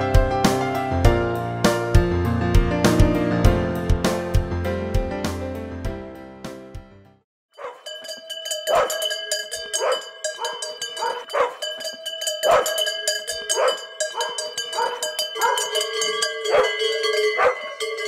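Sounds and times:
dog barking: 7.6s - 7.8s, 8.7s - 9.0s, 9.8s - 11.6s, 12.4s - 12.8s, 13.5s - 15.8s, 16.5s - 16.8s, 17.4s - 17.7s
cow bell ringing: 7.6s - 18.0s.

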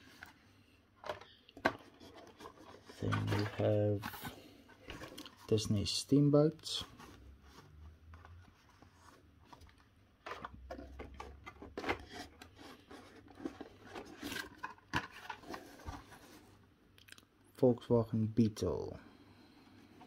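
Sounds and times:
cardboard and plastic scraping: 1.0s - 5.7s, 6.6s - 16.6s.

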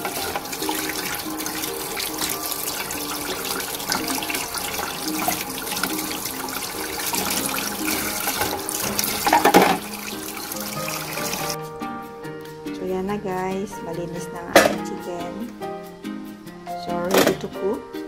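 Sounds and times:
tap water splashing into sink: 0.0s - 11.6s, 17.1s - 17.4s.

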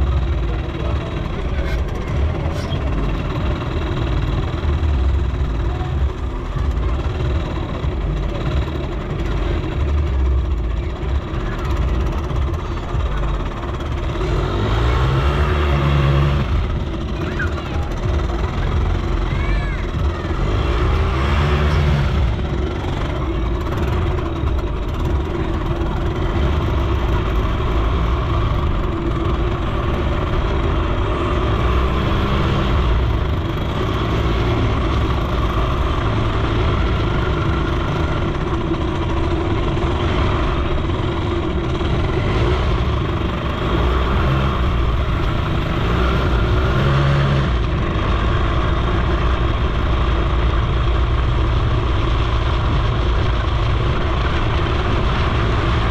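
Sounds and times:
moped engine running: 0.0s - 55.9s.

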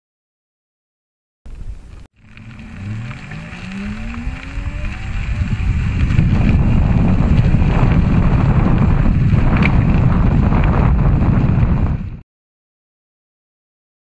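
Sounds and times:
tyres rolling over gravel: 1.5s - 11.7s
wind rumbling on microphone: 1.5s - 12.2s.

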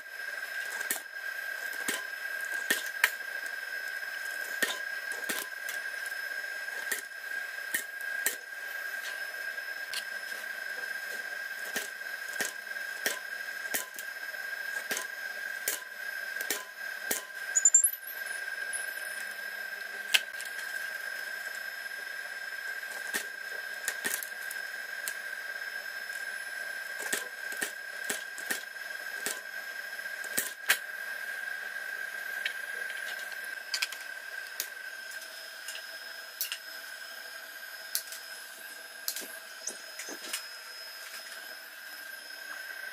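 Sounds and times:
steady high-pitched tone: 17.5s - 19.5s.

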